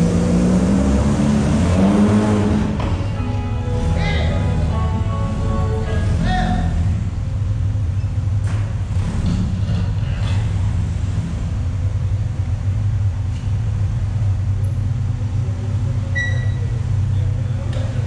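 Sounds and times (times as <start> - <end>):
vehicle engine running: 0.0 - 18.0
short high-pitched tone: 3.0 - 6.9.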